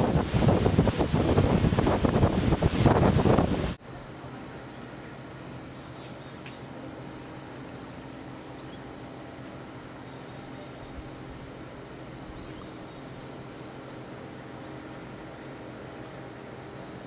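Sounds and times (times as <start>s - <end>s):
loud wind and water noise: 0.0s - 5.5s
faint hum: 3.7s - 17.0s
faint high bird chirps: 3.9s - 11.1s, 11.8s - 13.3s.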